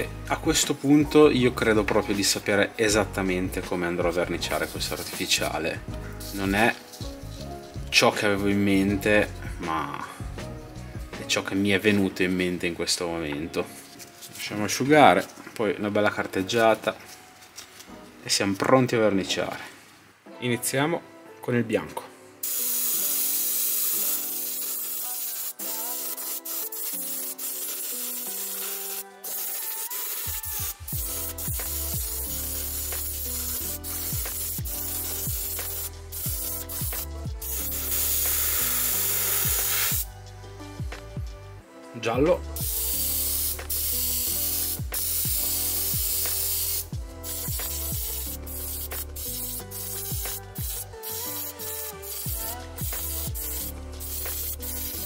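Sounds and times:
background music with beat: 0.0 - 15.6, 22.4 - 55.0
airbrush spraying hiss: 4.5 - 7.9, 22.4 - 40.1, 42.6 - 55.0.

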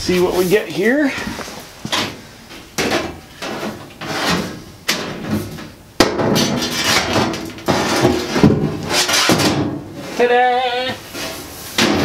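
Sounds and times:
sheet metal scraping and knocking: 2.8 - 10.2.

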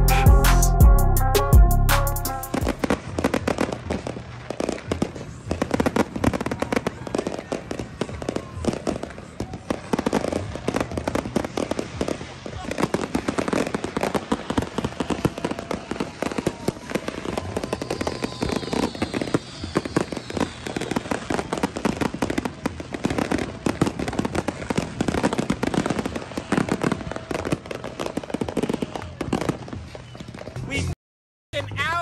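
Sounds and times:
firecrackers crackling and banging: 2.3 - 30.7
firework whistle sliding down: 17.0 - 21.4.

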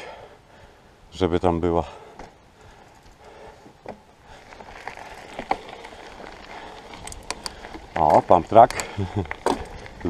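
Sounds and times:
bike tyres on loose gravel: 1.8 - 10.0
bike clicks and rattles: 2.9 - 10.0.

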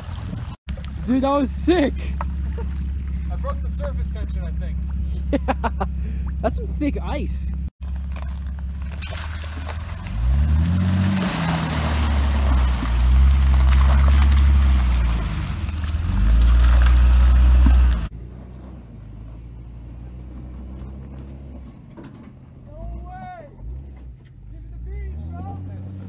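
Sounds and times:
water and ice splashing: 0.0 - 3.6, 7.8 - 18.1
engine revving: 9.8 - 21.8, 23.5 - 26.0.

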